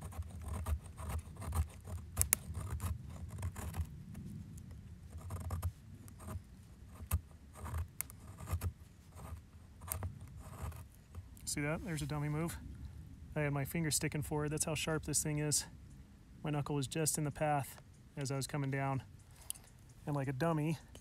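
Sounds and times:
knife scraping wood: 0.0s - 3.9s, 5.1s - 11.3s.

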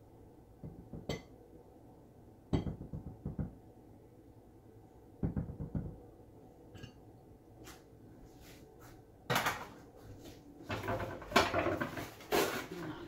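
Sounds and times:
dull knocks and taps: 5.2s - 6.0s.

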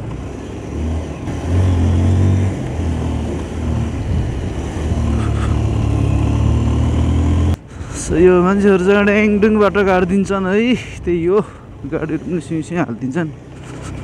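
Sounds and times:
motorcycle engine running: 0.0s - 10.9s.

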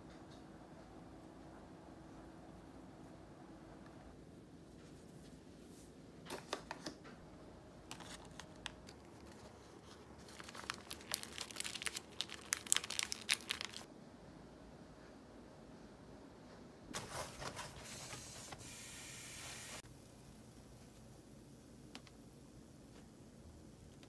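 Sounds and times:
rice paper crackling: 7.8s - 13.9s.

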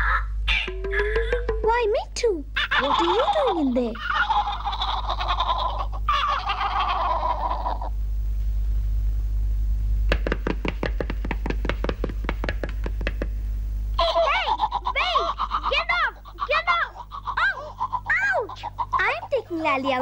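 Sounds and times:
cartoon chickens clucking: 2.6s - 7.8s, 14.0s - 19.5s
light sharp taps: 10.1s - 13.3s.

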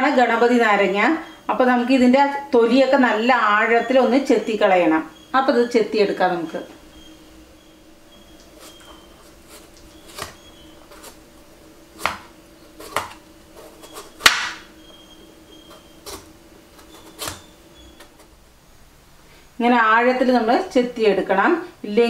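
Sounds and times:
knife slicing peel: 8.4s - 11.2s, 11.9s - 18.3s.

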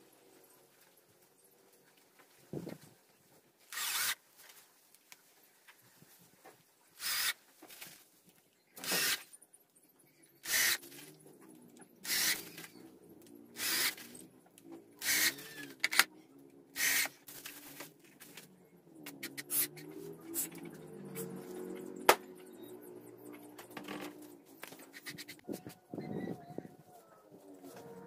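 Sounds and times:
cordless drill boring plywood: 3.7s - 4.2s, 7.0s - 7.4s, 8.8s - 9.3s, 10.4s - 10.8s, 12.0s - 12.7s, 13.6s - 14.1s, 15.0s - 16.0s, 16.8s - 17.1s.

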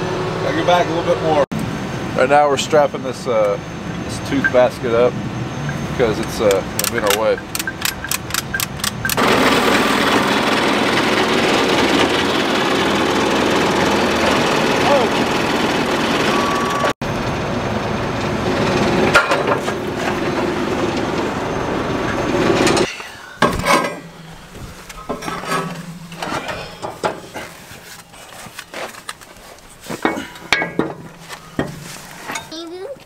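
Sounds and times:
engine running: 0.0s - 32.5s
hand tools clinking on metal: 6.2s - 9.2s, 22.8s - 29.2s, 29.9s - 32.7s.

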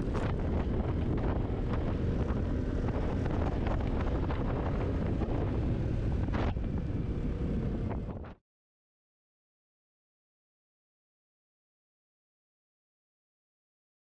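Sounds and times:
wind rushing over microphone: 0.0s - 8.4s.

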